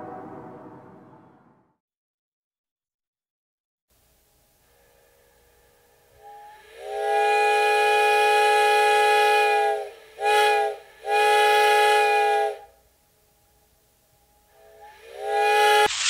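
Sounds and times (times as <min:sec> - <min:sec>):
steam locomotive chime whistle: 0:04.4 - 0:15.9
steam hissing: 0:06.2 - 0:12.6, 0:14.6 - 0:16.0.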